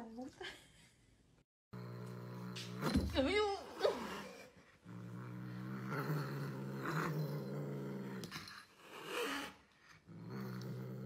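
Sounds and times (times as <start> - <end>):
cat growling low: 1.7 - 3.0, 3.6 - 11.0.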